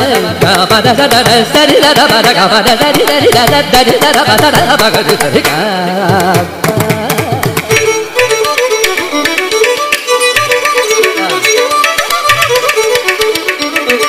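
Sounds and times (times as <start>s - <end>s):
man singing ornamented phrases: 0.0s - 7.4s
mridangam drum strokes: 0.0s - 14.0s
violin melody: 0.0s - 14.0s.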